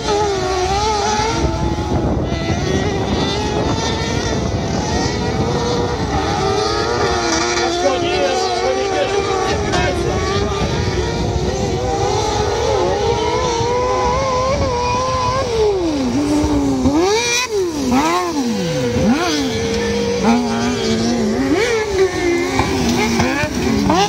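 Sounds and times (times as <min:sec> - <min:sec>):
motorcycle engines racing at high revs: 0:00.0 - 0:24.0.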